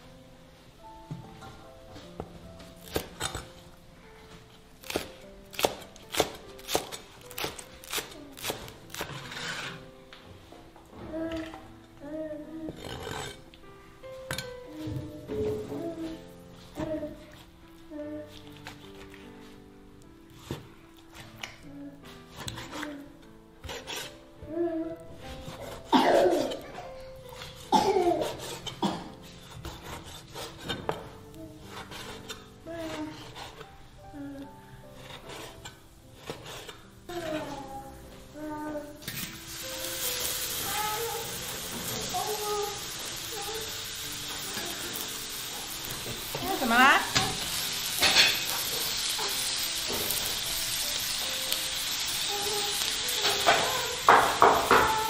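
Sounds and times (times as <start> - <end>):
blade scraping across board: 9.0 - 9.9
small child vocalizing: 37.1 - 39.0, 40.6 - 43.8, 52.2 - 54.1.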